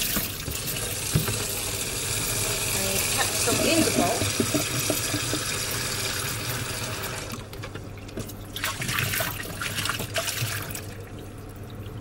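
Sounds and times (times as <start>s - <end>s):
tap water running into bowl: 0.0s - 12.0s
water sloshing and splashing: 7.2s - 12.0s.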